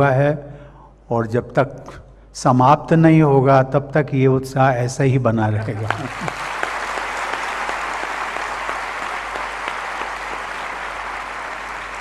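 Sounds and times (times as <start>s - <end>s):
large audience applauding: 5.7s - 12.0s.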